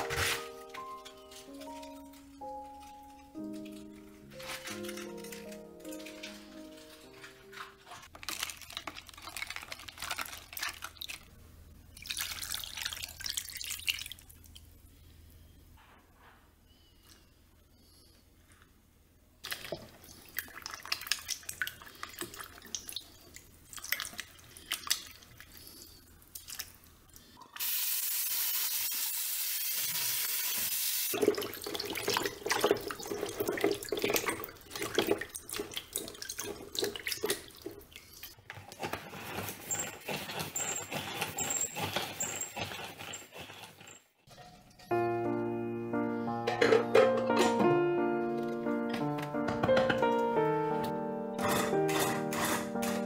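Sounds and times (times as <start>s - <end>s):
water splashing: 31.2s - 38.4s.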